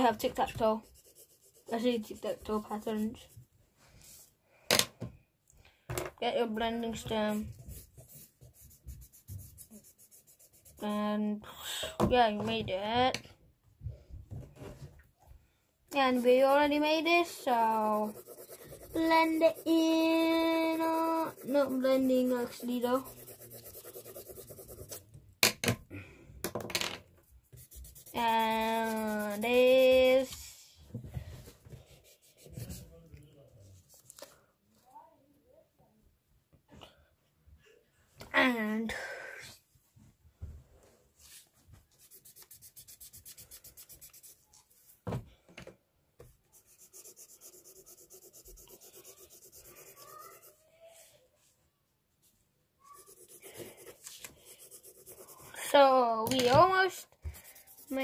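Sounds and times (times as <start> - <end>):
pencil scratching on paper: 0.0 - 3.4, 6.9 - 11.0, 16.0 - 25.1, 27.5 - 30.4, 31.9 - 33.0, 42.0 - 44.9, 46.5 - 50.6, 52.9 - 58.0.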